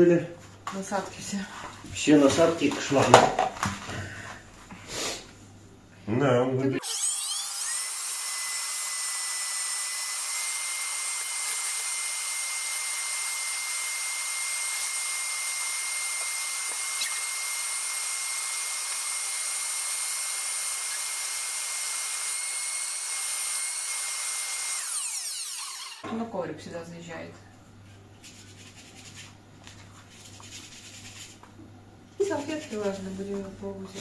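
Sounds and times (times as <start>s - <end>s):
vacuum cleaner motor whine: 6.8s - 26.0s.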